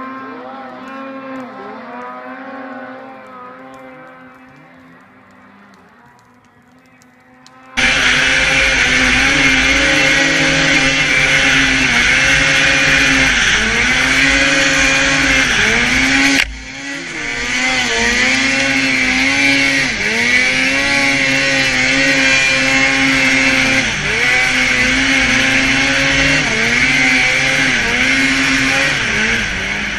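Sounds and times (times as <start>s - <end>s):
snowmobile engine revving: 0.0s - 4.7s, 7.7s - 29.9s
steady loud hiss: 7.8s - 29.9s.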